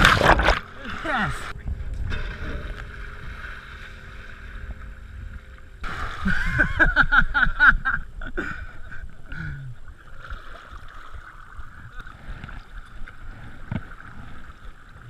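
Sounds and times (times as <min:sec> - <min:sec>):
wind rumble on microphone: 0:01.4 - 0:09.3.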